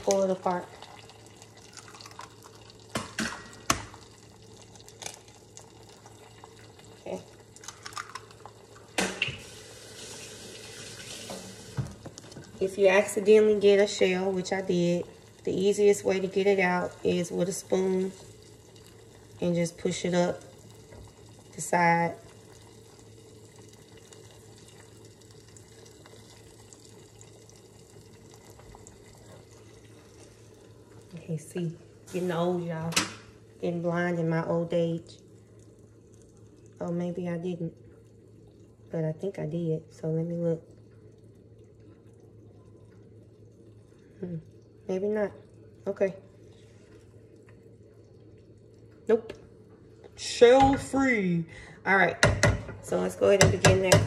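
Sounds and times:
egg dropping into pan: 0:02.9 - 0:04.0, 0:07.6 - 0:09.4, 0:52.2 - 0:52.8
wooden spoon tapping pan: 0:52.2 - 0:54.0.

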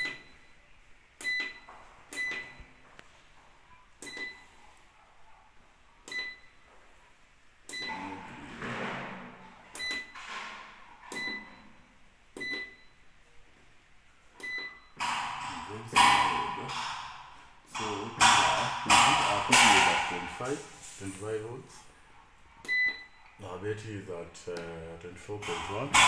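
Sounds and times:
button press beeps: 0:11.1 - 0:11.6, 0:12.4 - 0:12.9, 0:22.6 - 0:23.1.

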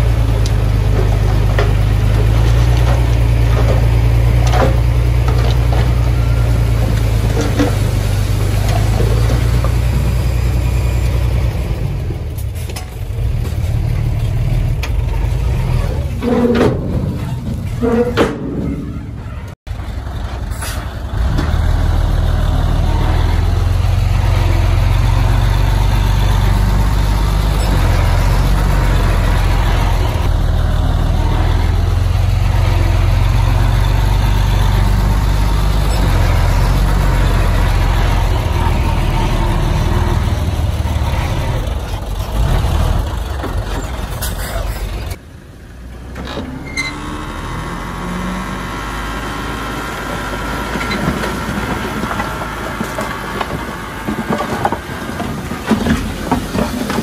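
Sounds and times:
machinery clanking: 0:00.0 - 0:45.2
diesel engine droning: 0:00.0 - 0:57.0.

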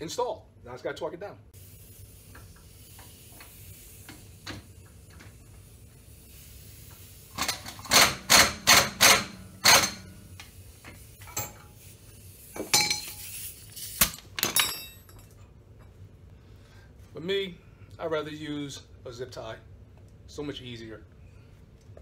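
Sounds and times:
metal tools clanking on steel: 0:14.1 - 0:15.4.

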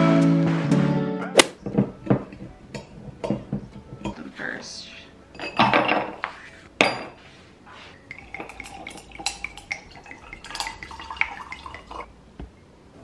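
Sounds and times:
ice clinking against glass: 0:08.1 - 0:12.1
wine pouring into a glass: 0:08.1 - 0:12.1.

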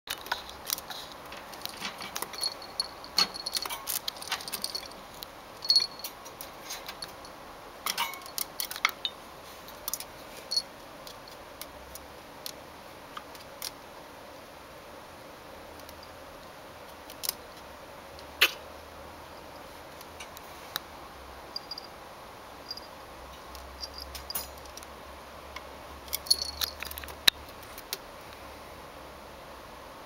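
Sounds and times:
small bell jingling: 0:01.7 - 0:06.2, 0:21.5 - 0:21.9, 0:22.7 - 0:23.0, 0:23.8 - 0:24.6, 0:26.1 - 0:27.0.

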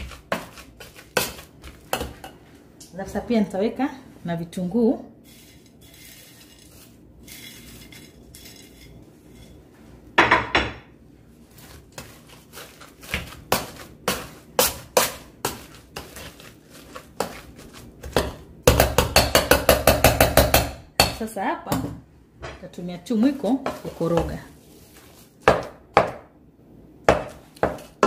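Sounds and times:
potato masher knocking in metal pot: 0:17.2 - 0:21.9.

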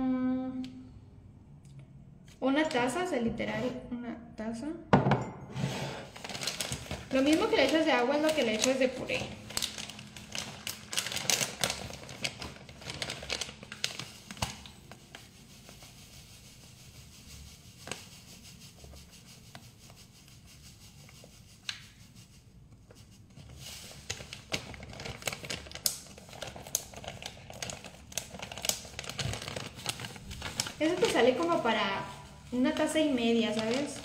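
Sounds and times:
plastic packet crinkling: 0:06.1 - 0:14.9, 0:23.7 - 0:34.0.

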